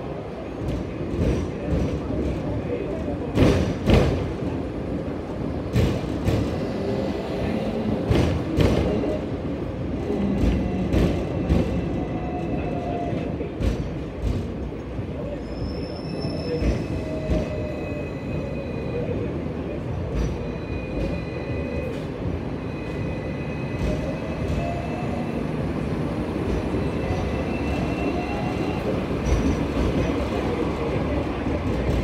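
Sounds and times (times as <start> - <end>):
tram wheels rumbling: 0.0 - 32.0
wheel-on-rail squeals: 15.2 - 25.6, 26.5 - 31.2.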